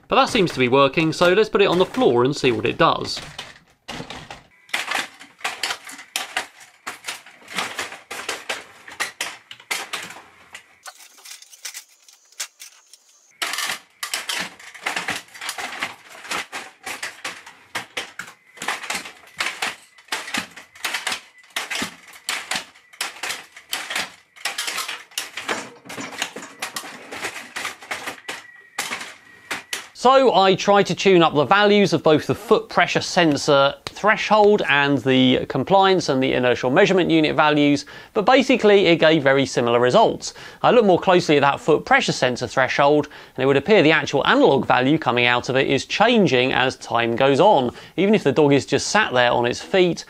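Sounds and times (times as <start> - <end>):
robot legs clattering: 0.3 - 30.0.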